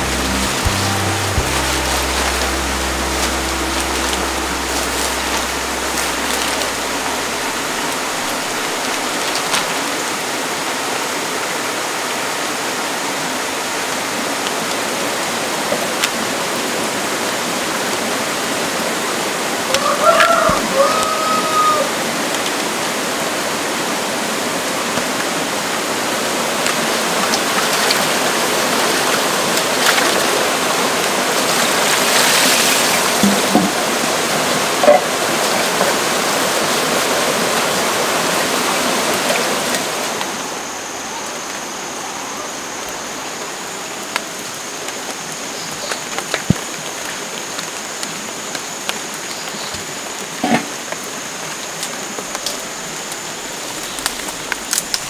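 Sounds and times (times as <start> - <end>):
stream cascading over rocks: 0.0 - 40.7.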